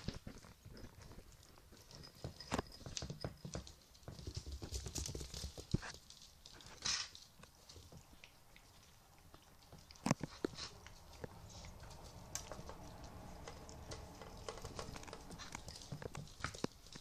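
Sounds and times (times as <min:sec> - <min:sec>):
puppies rustling on a towel: 0:04.0 - 0:17.0.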